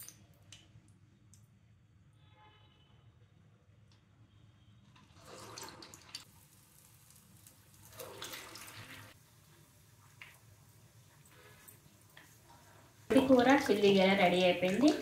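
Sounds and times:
food sizzling in hot oil: 5.6s - 15.0s.

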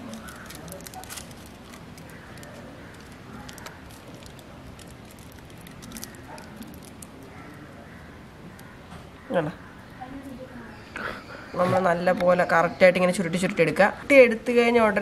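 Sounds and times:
aluminium foil crinkling: 0.0s - 7.6s.

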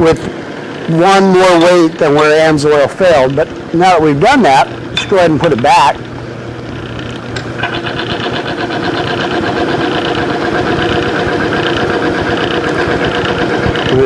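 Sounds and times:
pulsing grinding chatter: 0.0s - 14.0s.

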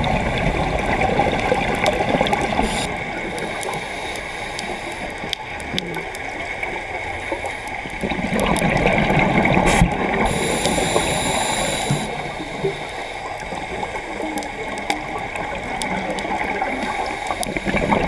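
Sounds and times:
underwater bubbling and gurgling: 0.0s - 18.0s
regulator hiss: 2.6s - 5.3s, 9.7s - 14.3s.

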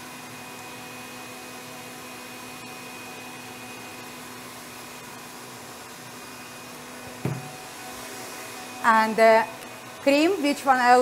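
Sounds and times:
fan humming: 1.8s - 11.0s.

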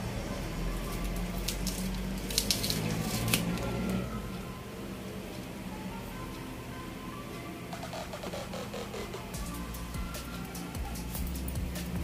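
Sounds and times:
ribbon cable clicking and rustling: 0.8s - 4.0s.

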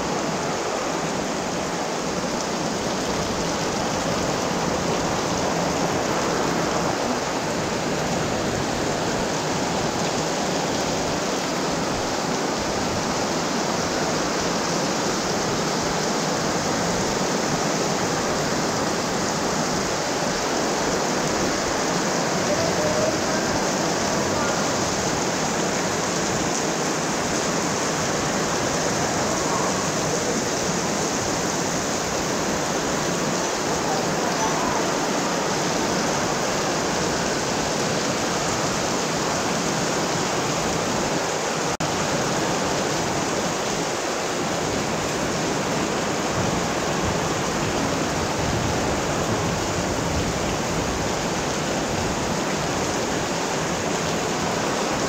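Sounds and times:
heavy rain pouring: 0.0s - 55.0s.

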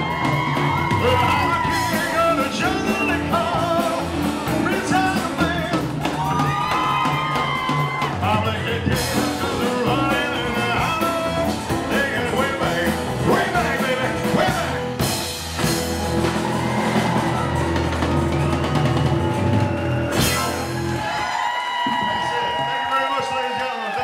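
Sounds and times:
live rock band playing: 0.0s - 22.8s
male lead vocal: 0.8s - 6.2s, 8.0s - 15.0s.

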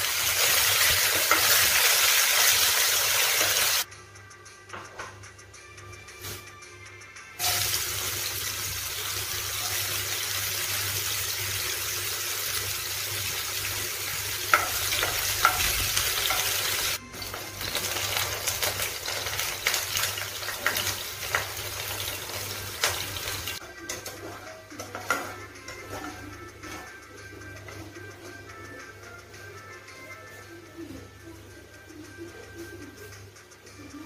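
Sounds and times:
vegetables sizzling in oil: 0.0s - 3.9s, 7.4s - 23.6s.

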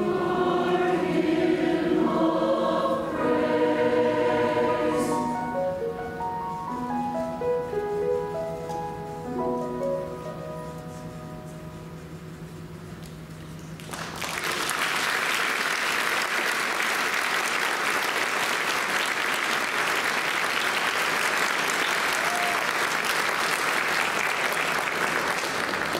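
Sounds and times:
audience applause: 13.8s - 25.9s.

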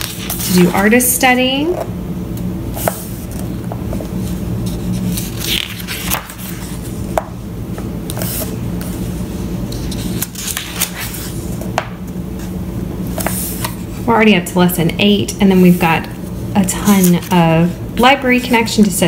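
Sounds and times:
book pages turning: 0.0s - 1.0s, 2.7s - 12.5s, 13.1s - 13.9s.

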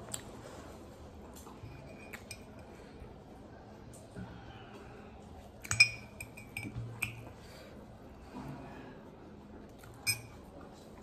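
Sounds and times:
spoon clinking on a plate: 1.8s - 2.6s, 5.7s - 7.3s, 10.0s - 10.4s.

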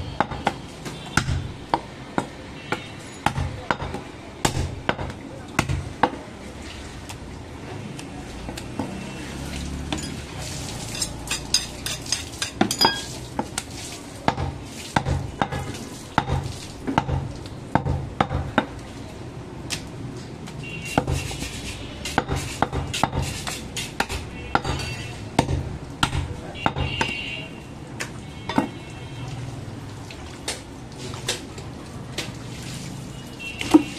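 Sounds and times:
knife chopping meat on wood block: 3.2s - 6.2s, 14.3s - 18.7s, 22.0s - 24.8s, 25.4s - 27.1s.

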